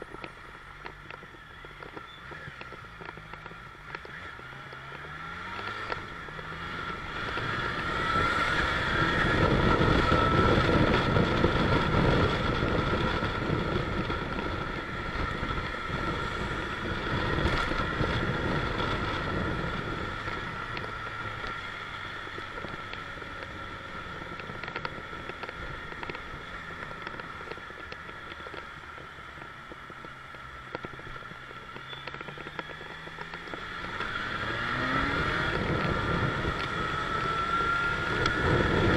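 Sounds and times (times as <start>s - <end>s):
motorcycle engine: 0.0s - 38.9s
wind rush: 6.6s - 21.3s, 34.2s - 38.9s.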